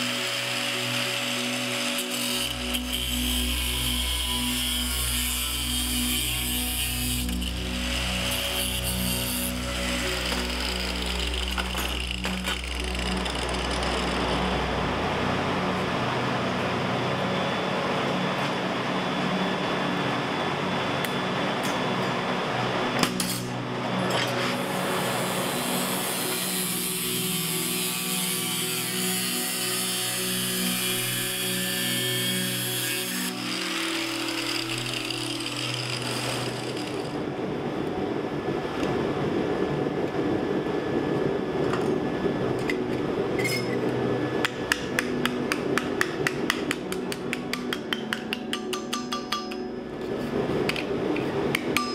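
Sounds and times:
angle grinder cutting pipe: 0:00.0 - 0:14.8, 0:24.2 - 0:37.2
hammer striking copper on anvil: 0:44.4 - 0:49.7, 0:51.5 - 0:51.9.

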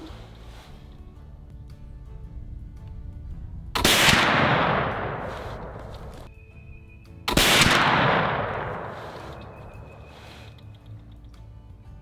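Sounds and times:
faint background music: 0:00.0 - 0:12.0
rifle shots echoing: 0:03.8 - 0:06.3, 0:07.3 - 0:10.0.

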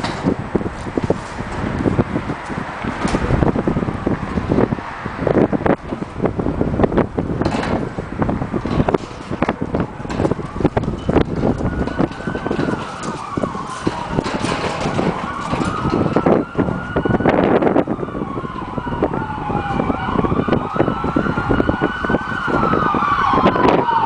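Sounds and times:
short knocks and crackles: 0:00.0 - 0:03.4, 0:07.4 - 0:08.0, 0:08.6 - 0:17.0
emergency siren wailing: 0:00.1 - 0:24.0.

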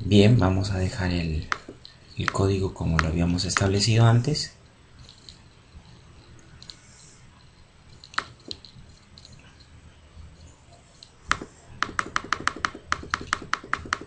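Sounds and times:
computer keyboard typing: 0:01.4 - 0:03.8, 0:07.9 - 0:09.6, 0:10.4 - 0:14.0.

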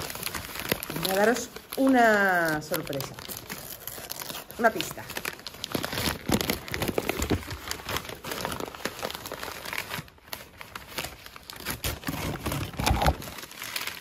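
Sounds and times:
wrapping paper crinkling: 0:00.0 - 0:14.0.

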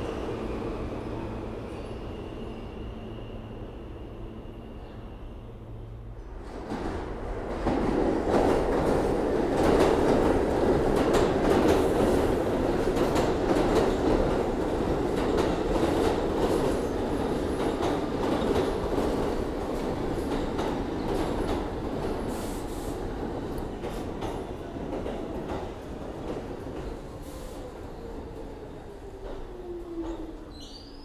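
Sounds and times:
subway train wheels rumbling: 0:00.0 - 0:31.0.

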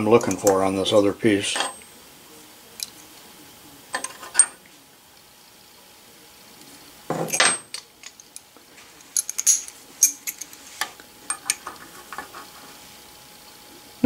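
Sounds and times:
pliers clinking on steel plate: 0:01.5 - 0:01.9.

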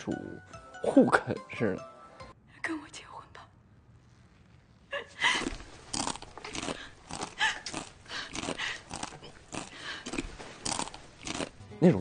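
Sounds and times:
heavy breathing: 0:06.7 - 0:10.7.

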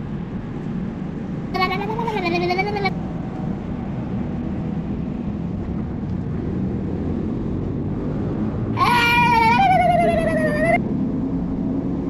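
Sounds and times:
high wavering cry: 0:01.6 - 0:02.9, 0:08.8 - 0:10.8.

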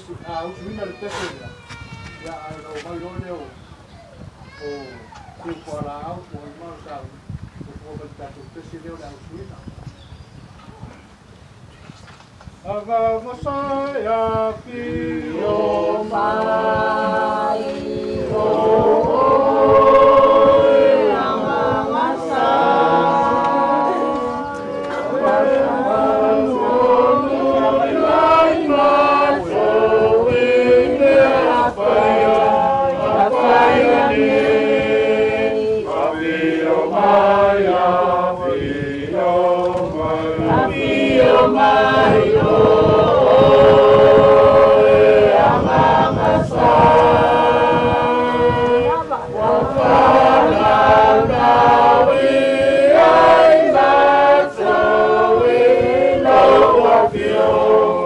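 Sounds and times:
choir singing a hymn: 0:12.6 - 0:58.0.

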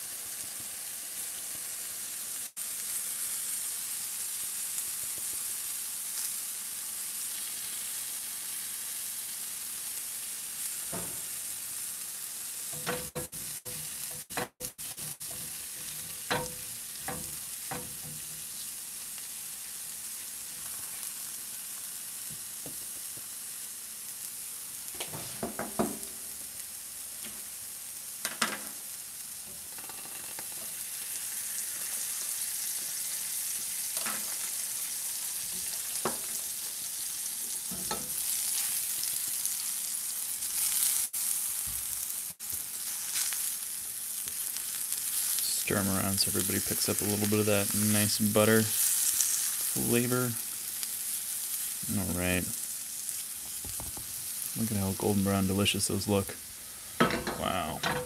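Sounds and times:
mushrooms sizzling in a pan: 0:00.0 - 0:58.0
spatula scraping a pan: 0:12.7 - 0:18.6.

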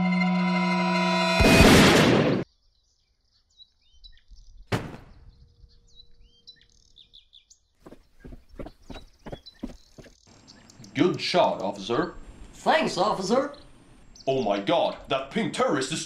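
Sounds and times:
birds chirping: 0:02.5 - 0:15.6
cartoon gunshot blast: 0:04.7 - 0:05.2
sharp thud: 0:04.7 - 0:05.3.

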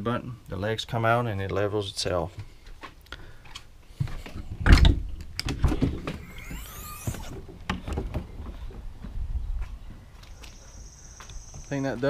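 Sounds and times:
high chirping: 0:06.2 - 0:07.4, 0:10.3 - 0:12.0.

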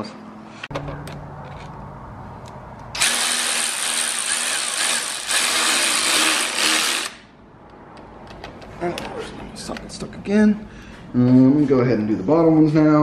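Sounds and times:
cordless power tool spinning: 0:03.0 - 0:07.2.

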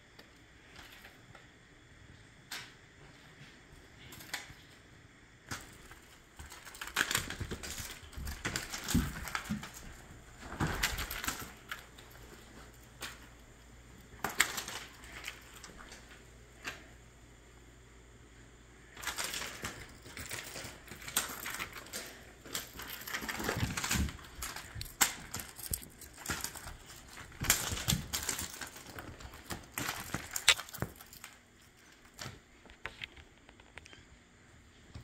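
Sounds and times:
rustling and scuffling: 0:05.5 - 0:16.9, 0:18.8 - 0:33.9.

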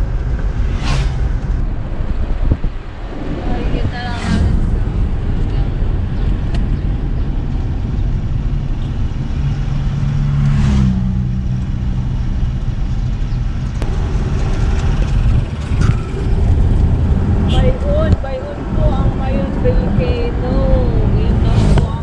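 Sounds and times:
engine and road rumble: 0:00.0 - 0:22.0
brief whoosh: 0:00.5 - 0:01.6.

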